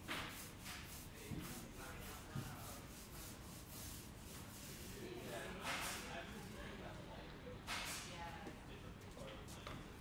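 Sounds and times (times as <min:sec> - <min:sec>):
paint roller rubbing on wall: 0:00.3 - 0:05.0.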